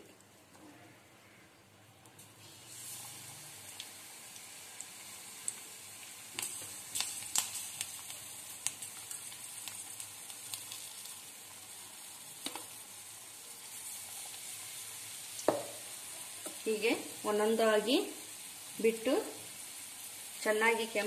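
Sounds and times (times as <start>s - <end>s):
chillies deep-frying in oil: 0.1s - 21.0s.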